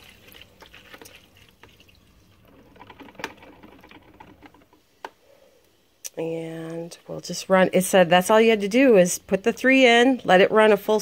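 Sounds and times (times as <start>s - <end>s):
water trickling into reservoir: 0.0s - 4.7s.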